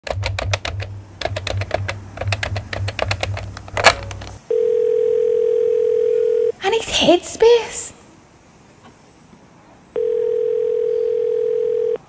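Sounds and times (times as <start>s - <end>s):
rapid keyboard typing: 0.0s - 4.4s.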